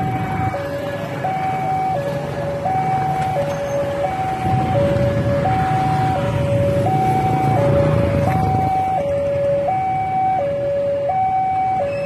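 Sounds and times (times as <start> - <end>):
two-tone crossing alarm: 0.0 - 12.0.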